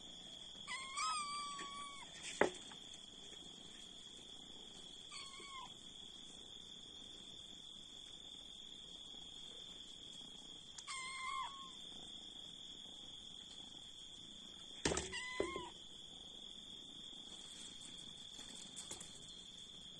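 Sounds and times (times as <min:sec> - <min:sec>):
cat meowing: 0:00.6 - 0:02.1, 0:05.1 - 0:05.7, 0:10.8 - 0:11.8, 0:15.0 - 0:15.8.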